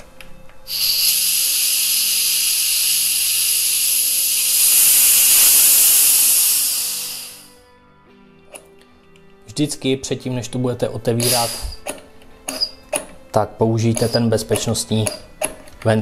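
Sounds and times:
gas venting from valve hiss: 0.6 - 7.7, 11.1 - 15.7.

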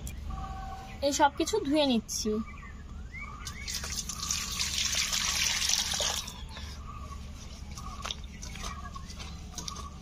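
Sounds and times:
water dripping: 3.4 - 6.3.

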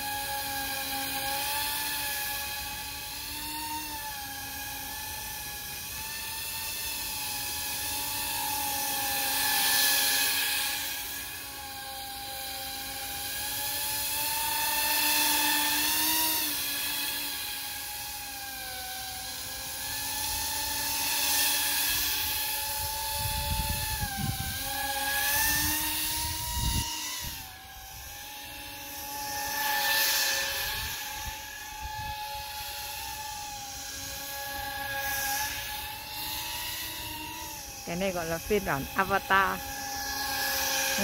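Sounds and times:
model aircraft motors whining: 0.0 - 41.0
wind buffeting microphone: 23.1 - 24.7, 25.5 - 27.4.

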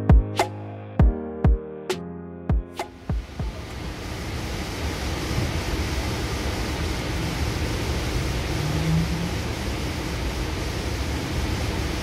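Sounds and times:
hiss: 3.8 - 12.0.

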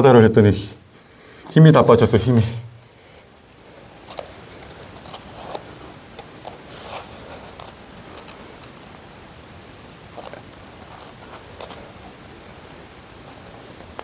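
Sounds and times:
cloth rustling: 2.8 - 14.0.

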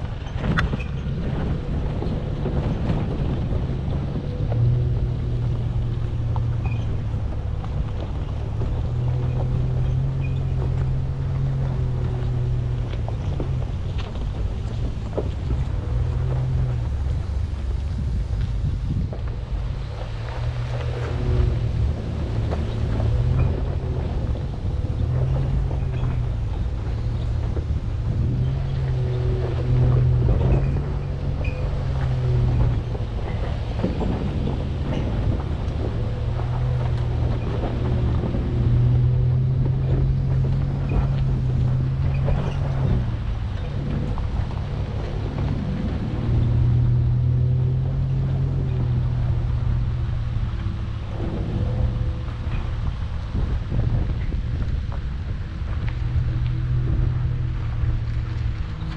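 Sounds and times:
truck engine droning: 0.0 - 58.9
truck knocking over rocks: 0.0 - 58.9
wind rumble on microphone: 0.0 - 58.9.

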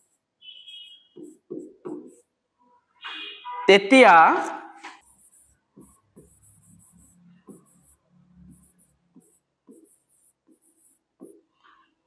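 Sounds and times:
pen tapping on whiteboard: 1.2 - 2.2, 7.5 - 7.9, 8.5 - 11.5.

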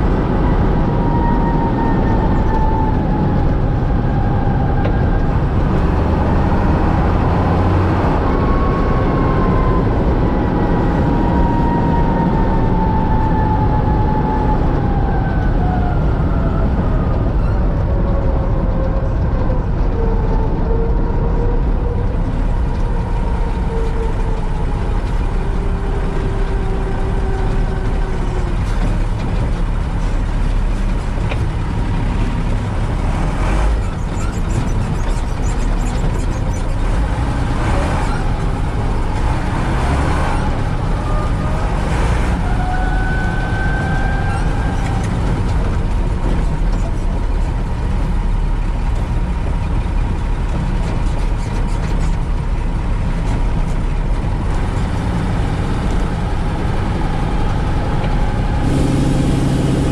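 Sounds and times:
diesel truck engine under load: 0.0 - 59.9
truck rattling on gravel: 17.6 - 59.9.

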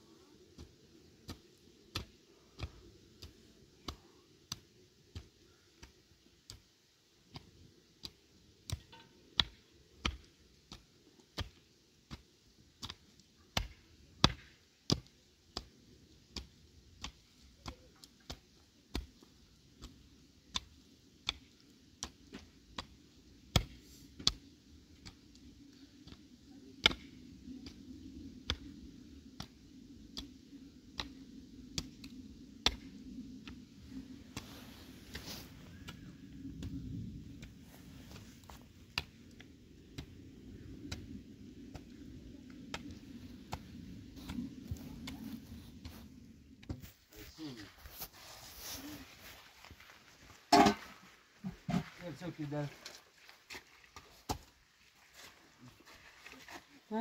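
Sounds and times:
faint low background noise: 0.0 - 57.0.

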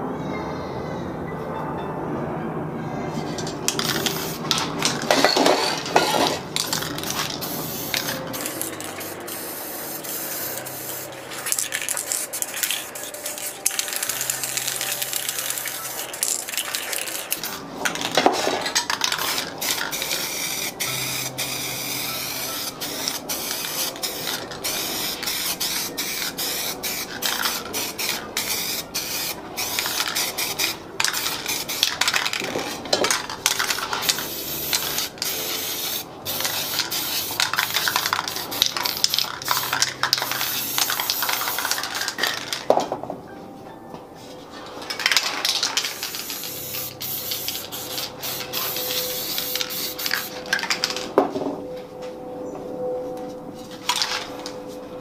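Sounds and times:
spray paint cans hissing: 3.2 - 42.8, 44.9 - 51.2, 53.8 - 54.3
metal cans clinking: 3.3 - 9.4, 11.2 - 20.8, 29.6 - 35.4, 36.3 - 43.0, 44.8 - 51.4, 53.8 - 54.4.

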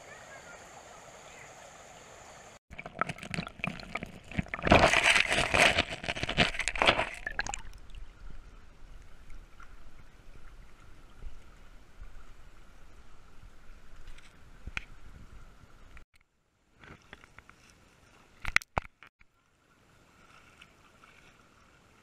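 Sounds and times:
running water hiss: 0.0 - 2.6
creek water splashing: 0.1 - 15.2, 19.6 - 22.0.

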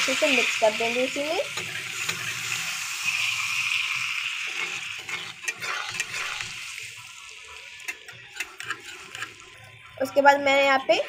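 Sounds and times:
frying sizzle: 0.0 - 11.0
spoon scraping metal pan: 1.5 - 6.8, 7.8 - 9.6.

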